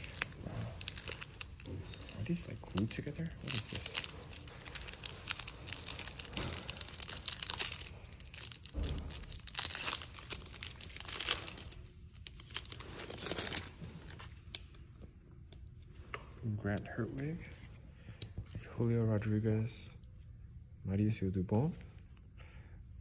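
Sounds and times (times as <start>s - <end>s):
foil wrapper crinkling and tearing: 0.0s - 14.8s
cards rustling: 0.0s - 14.9s.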